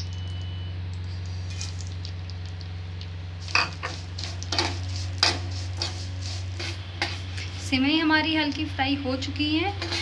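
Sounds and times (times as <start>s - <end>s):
ghee sizzling: 0.0s - 10.0s
spoon scraping a pan: 3.5s - 7.5s, 9.7s - 10.0s.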